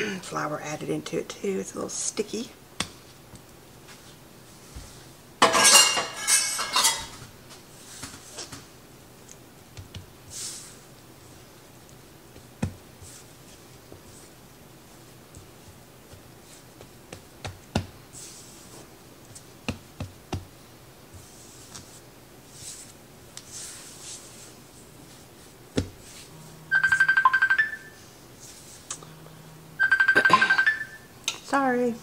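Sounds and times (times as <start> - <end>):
hands patting dough: 2.8 - 5.0, 7.5 - 26.3
soft thumps and rustling: 25.7 - 26.3
phone ringtone trill: 26.7 - 28.0, 29.8 - 31.1.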